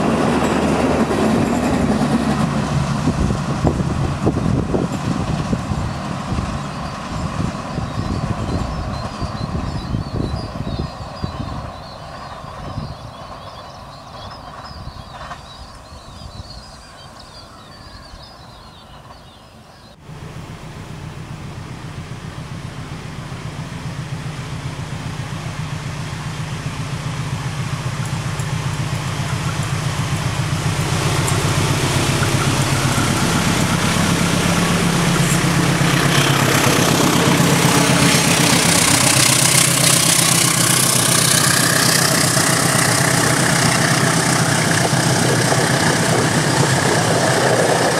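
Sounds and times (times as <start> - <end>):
train wheels on rails: 0.0 - 19.7, 21.9 - 47.9
diesel locomotive engine drone: 0.0 - 47.9.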